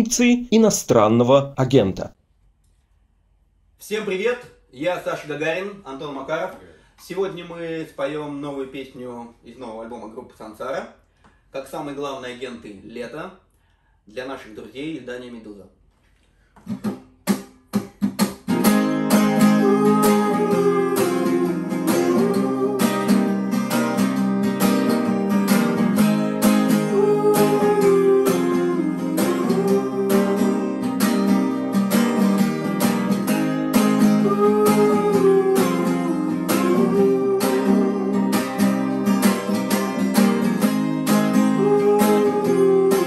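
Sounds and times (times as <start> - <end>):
acoustic guitars playing: 16.7 - 43.0.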